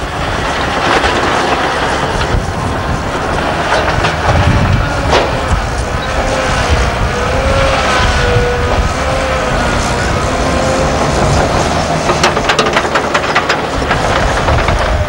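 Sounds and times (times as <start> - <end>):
diesel engines with whine: 0.0 - 15.0
metal clanks: 9.8 - 15.0.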